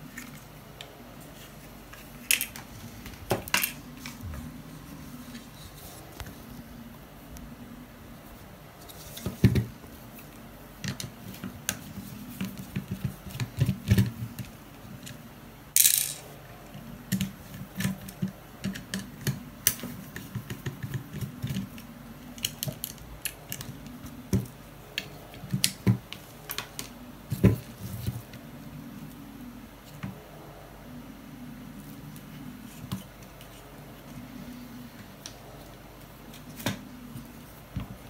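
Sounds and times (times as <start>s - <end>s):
small parts clicking and tapping: 15.8s - 16.2s.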